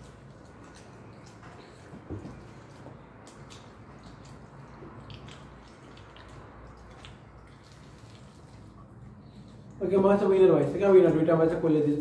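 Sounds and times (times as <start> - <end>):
wet clicks and crunches of eating: 0.0 - 9.9.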